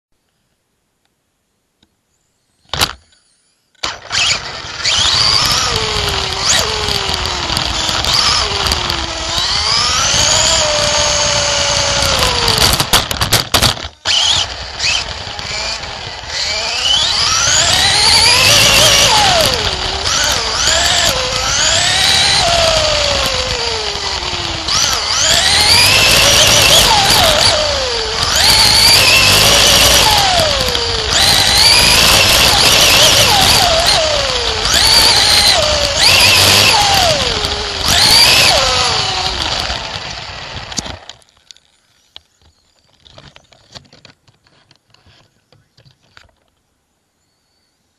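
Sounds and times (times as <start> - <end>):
race car engine revving: 4.2 - 39.9.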